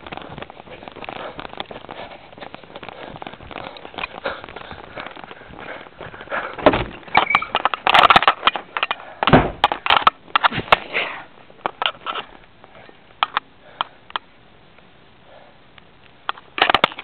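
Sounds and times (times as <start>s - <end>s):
camera rubbing against clothing: 0.0s - 7.8s.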